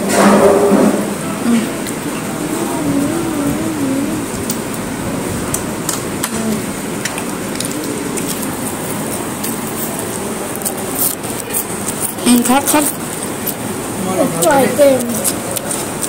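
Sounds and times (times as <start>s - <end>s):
faint voice: 1.4s - 4.6s.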